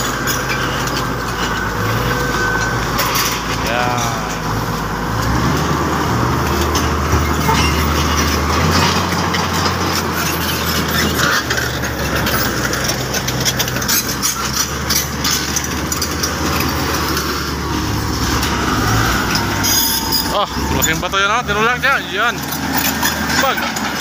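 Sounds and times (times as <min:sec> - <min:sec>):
diesel engine drone: 0:00.0 - 0:24.0
clanks and knocks: 0:06.4 - 0:24.0.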